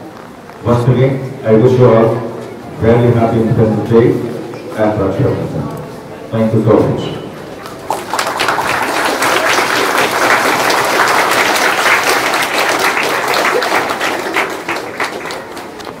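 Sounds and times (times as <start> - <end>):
audience applause: 7.7 - 16.0.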